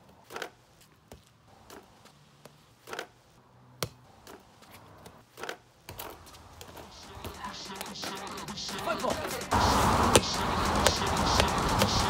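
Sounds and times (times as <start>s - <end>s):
ball pops and slaps on net: 0.2s - 3.2s, 3.8s - 4.4s.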